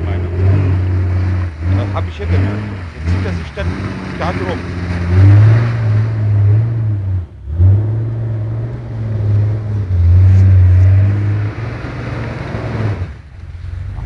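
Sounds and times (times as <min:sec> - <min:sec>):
machine engine droning: 0:00.0 - 0:14.0.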